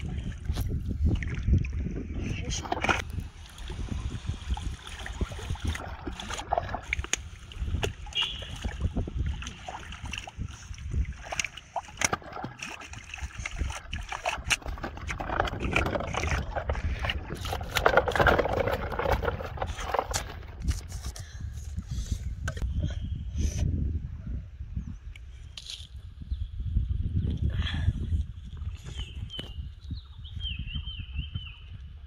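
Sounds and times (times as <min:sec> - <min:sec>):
person wading through water: 0:00.0 - 0:20.6
fish thrashing in water: 0:02.6 - 0:20.7.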